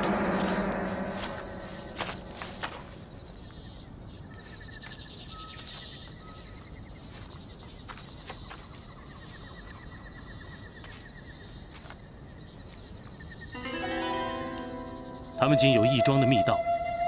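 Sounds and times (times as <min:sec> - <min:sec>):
insects chirping in trills: 0:00.0 - 0:17.0
background hiss: 0:12.8 - 0:16.6.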